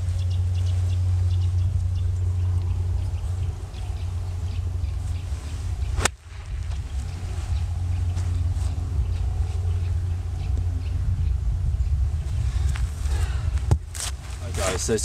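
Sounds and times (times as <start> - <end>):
wind on microphone: 0.0 - 15.0
golf club striking ball: 5.9 - 6.8.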